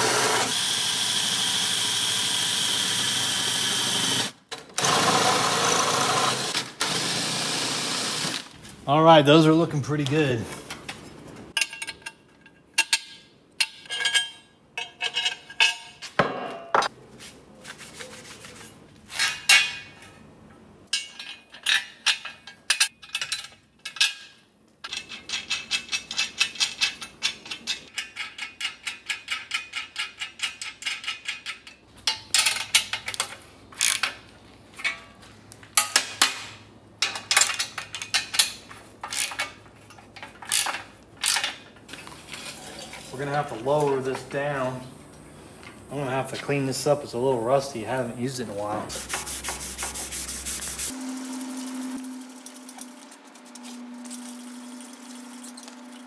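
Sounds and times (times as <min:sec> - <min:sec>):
metal parts clinking: 0:11.6 - 0:16.1, 0:20.9 - 0:35.2, 0:35.8 - 0:44.3.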